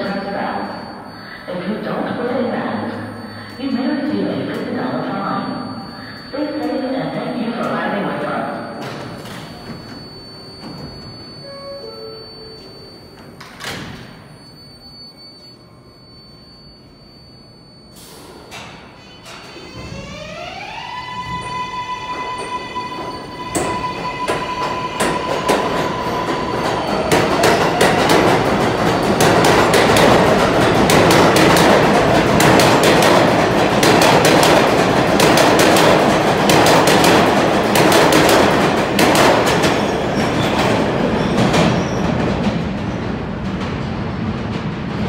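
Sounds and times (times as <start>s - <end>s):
train rumble: 21.2s - 45.0s.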